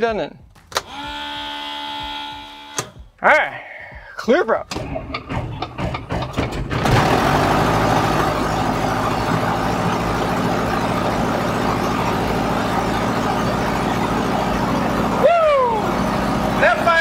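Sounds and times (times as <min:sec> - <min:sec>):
aircraft engine starter cranking: 0:00.6 - 0:03.1, 0:04.6 - 0:07.6
aircraft engine running: 0:04.7 - 0:17.0.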